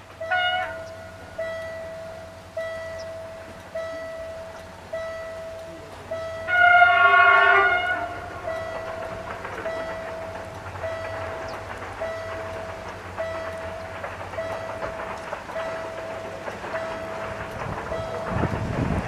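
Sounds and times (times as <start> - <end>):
level-crossing bell dinging: 0.0 - 18.7
train running noise: 0.0 - 19.0
train horn blast: 0.2 - 1.7, 6.2 - 9.0.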